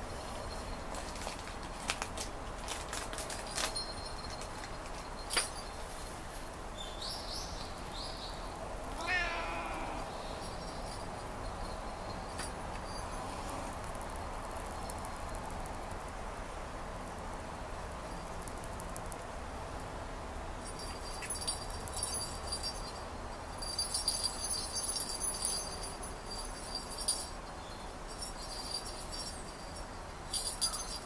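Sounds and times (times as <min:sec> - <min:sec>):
cat meowing: 0:08.9 - 0:10.2.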